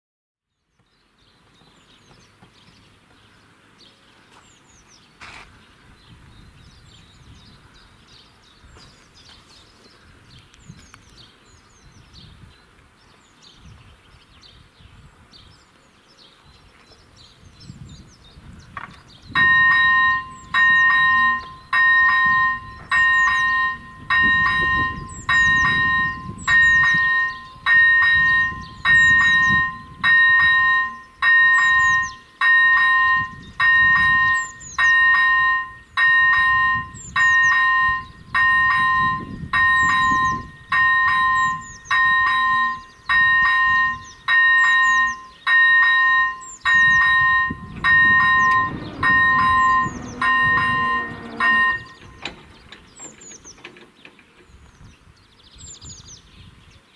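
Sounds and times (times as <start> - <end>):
level-crossing bell ringing: 19.4 - 52.2.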